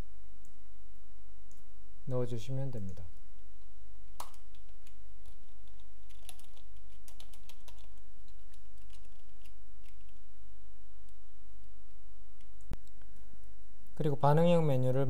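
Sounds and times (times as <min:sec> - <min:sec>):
keyboard typing clicks: 0:04.2 - 0:10.2.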